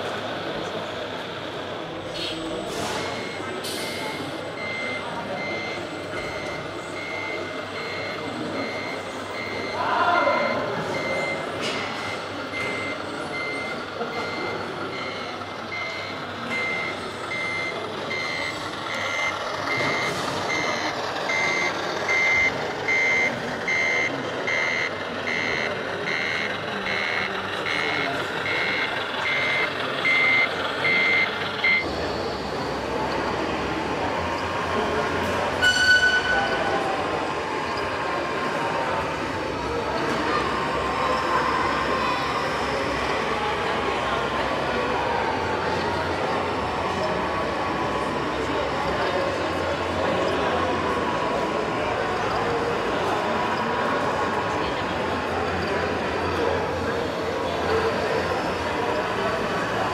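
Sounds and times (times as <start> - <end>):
reversing warning beeper: 2.9 - 32.5.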